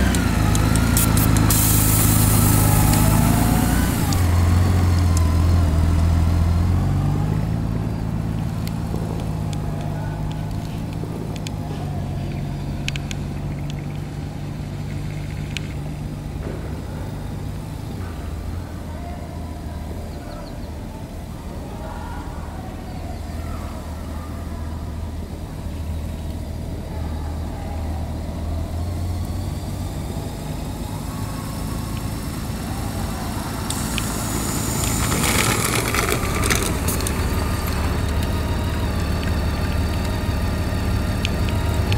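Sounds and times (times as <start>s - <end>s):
rough crunching noise: 0.0s - 18.2s, 31.0s - 40.2s
motorcycle engine at low revs: 0.0s - 18.7s, 28.1s - 41.9s.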